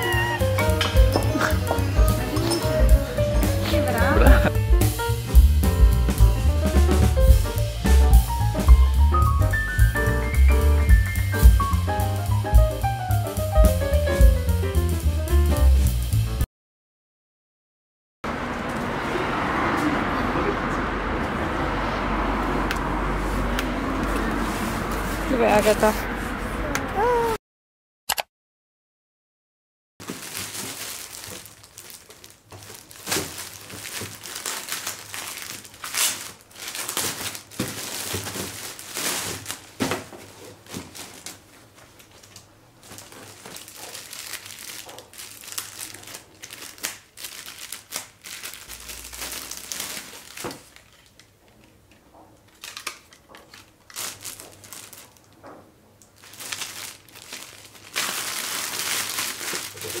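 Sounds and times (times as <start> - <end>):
plastic bags crinkling: 0.0 - 4.5, 30.0 - 51.7, 52.5 - 60.0.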